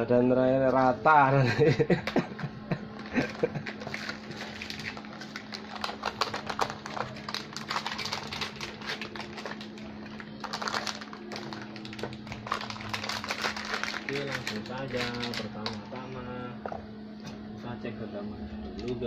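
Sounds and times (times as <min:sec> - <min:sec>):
box and plastic bags handled: 0:03.0 - 0:16.0.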